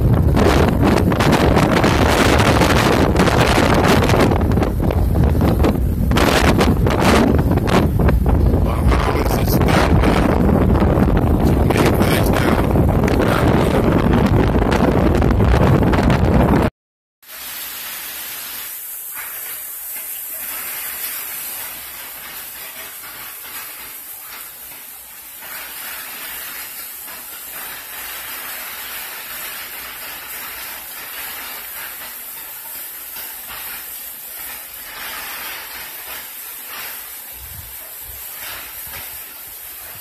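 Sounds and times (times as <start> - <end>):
heavy rain pouring: 0.0 - 40.0.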